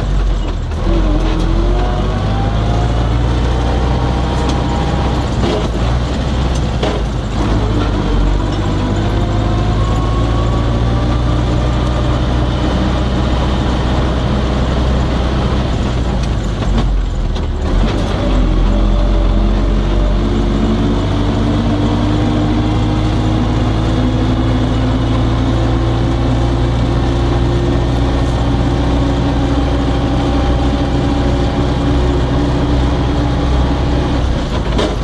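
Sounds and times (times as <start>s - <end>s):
tractor diesel engine under load: 0.0s - 35.0s
rattles and knocks: 5.3s - 8.8s.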